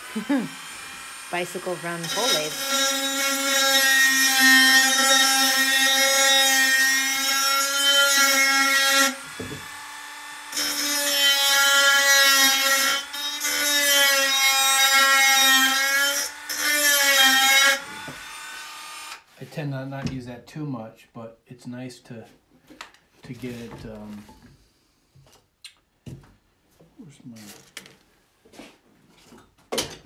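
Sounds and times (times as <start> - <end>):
rotary tool grinding steel: 0.0 - 9.3, 10.4 - 19.2.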